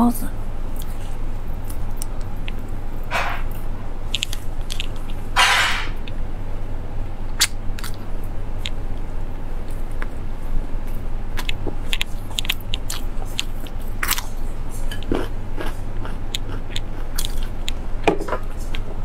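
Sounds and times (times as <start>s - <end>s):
steady low hum: 0.0s - 19.0s
loud noisy sounds: 3.0s - 3.8s, 4.7s - 6.0s
woman biting and chewing meat: 10.8s - 18.9s.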